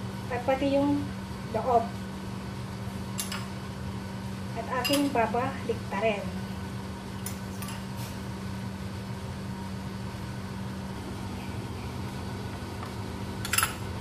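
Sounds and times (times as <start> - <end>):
low machine hum: 0.0 - 14.0
metal spoon clinking ceramic bowl: 4.8 - 5.1.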